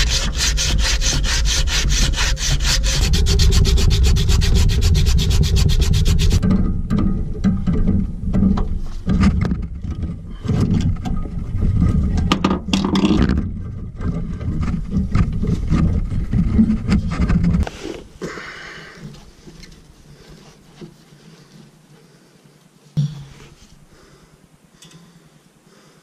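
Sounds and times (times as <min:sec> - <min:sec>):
screwdriver scraping and knocking: 0:00.0 - 0:06.5
heavy low rumble: 0:01.9 - 0:07.4.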